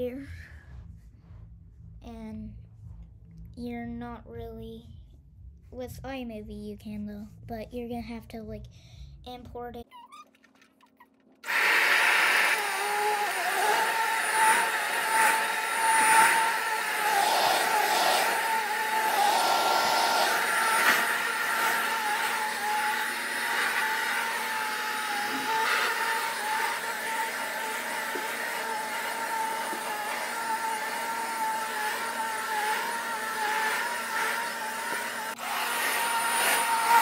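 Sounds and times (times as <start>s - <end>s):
vacuum cleaner motor hum: 11.4s - 37.0s.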